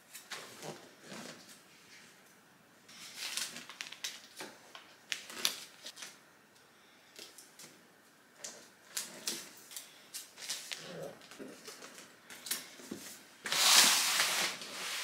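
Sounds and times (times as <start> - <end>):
wrapping paper rustling and crinkling: 2.9 - 6.2, 8.4 - 15.0.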